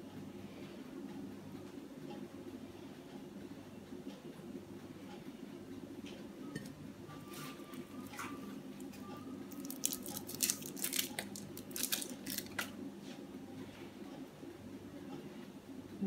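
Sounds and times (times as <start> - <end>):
steady low hum: 0.0 - 16.0
foil wrapper crinkling: 9.5 - 12.7.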